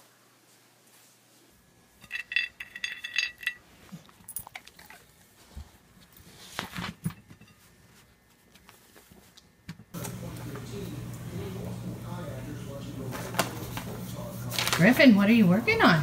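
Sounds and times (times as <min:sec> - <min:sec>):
small metal objects clinking: 0:02.0 - 0:03.6.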